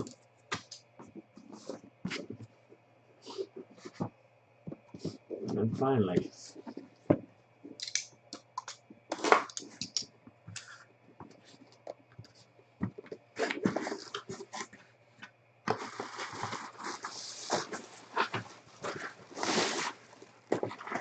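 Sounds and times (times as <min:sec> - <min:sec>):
cardboard box crackling and scraping: 0:15.7 - 0:21.0
wrapping rustling: 0:15.7 - 0:21.0.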